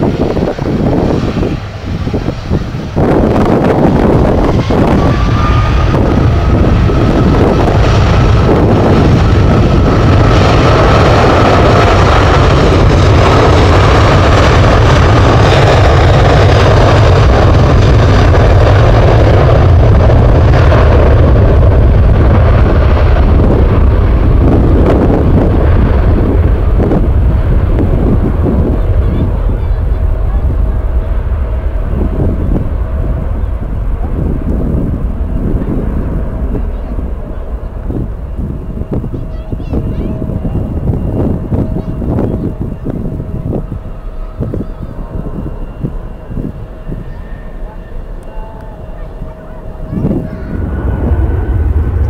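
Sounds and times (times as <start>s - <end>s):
jet engines rumbling: 0.0s - 52.0s
faint high whine: 23.6s - 52.0s.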